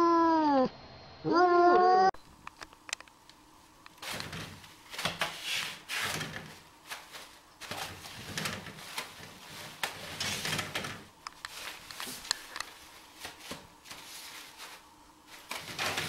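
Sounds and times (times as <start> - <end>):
toilet paper rustling: 3.9 - 16.0.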